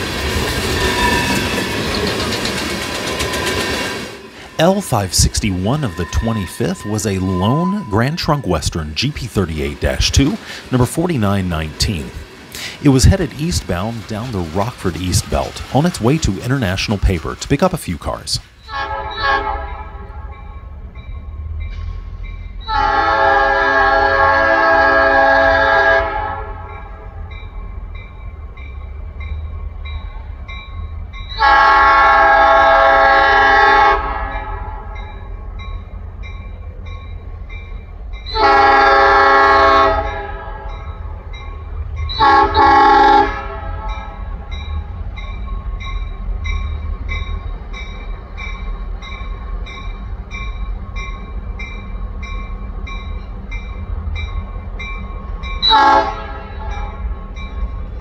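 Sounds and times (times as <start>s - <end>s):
crossing bell dinging: 0.8s - 12.2s, 19.1s - 23.1s, 26.4s - 32.1s, 34.1s - 58.0s
diesel locomotive horn blasts: 18.6s - 20.4s, 22.6s - 27.0s, 31.4s - 35.0s, 38.3s - 40.8s, 42.1s - 44.2s, 55.6s - 57.0s.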